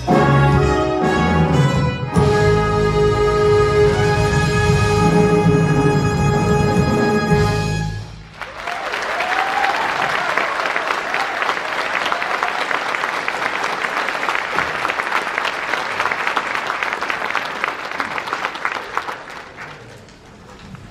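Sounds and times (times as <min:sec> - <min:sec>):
audience applauding: 0:08.3 - 0:20.9.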